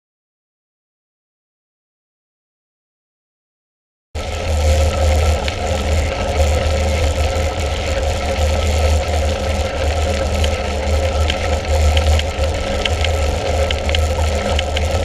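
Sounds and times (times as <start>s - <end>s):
faint clicks: 8.1s - 15.0s.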